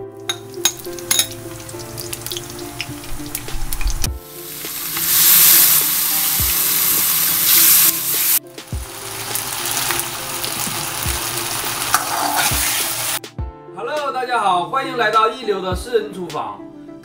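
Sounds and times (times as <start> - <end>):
food sizzling in a wok: 0.3 - 13.2
ladle stirring in wok: 9.2 - 13.2.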